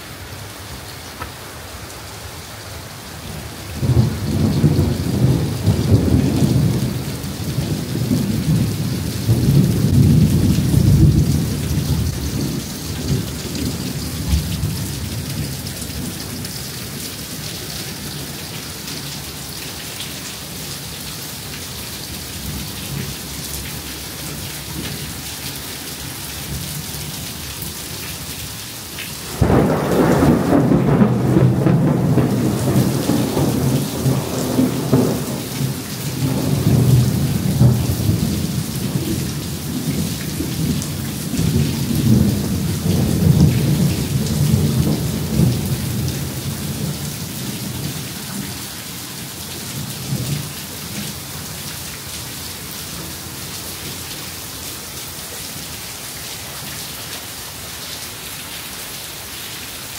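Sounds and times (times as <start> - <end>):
heavy rain falling: 0.0 - 59.9
thunder rumbling: 3.8 - 16.2, 29.3 - 48.5.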